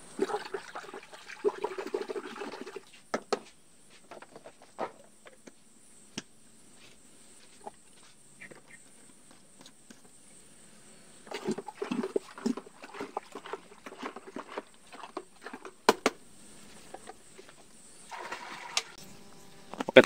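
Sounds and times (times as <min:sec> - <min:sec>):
faint insect drone: 0:00.0 - 0:20.0
liquid sloshing in bucket: 0:00.1 - 0:02.9, 0:11.2 - 0:15.9, 0:16.9 - 0:19.0.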